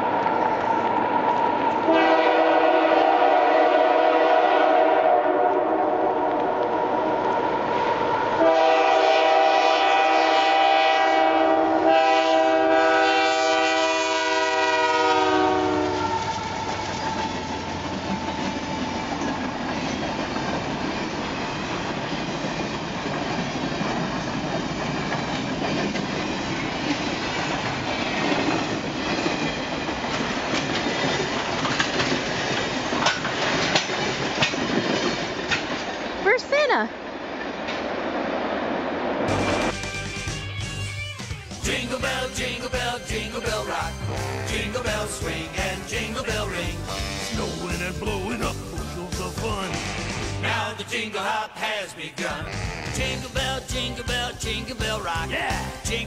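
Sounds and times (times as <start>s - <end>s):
train rumble and wheel clatter: 0.0s - 40.9s, 41.6s - 50.4s, 53.0s - 56.0s
locomotive air horn: 1.9s - 6.8s, 8.4s - 16.8s, 43.8s - 45.0s, 46.7s - 47.7s.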